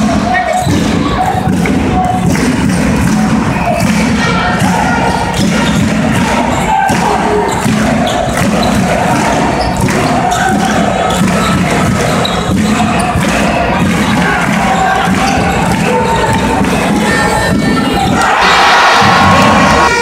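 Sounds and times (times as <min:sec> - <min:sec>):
arena crowd noise with voices: 0:00.0 - 0:20.0
basketball bouncing on hardwood: 0:00.7 - 0:15.8.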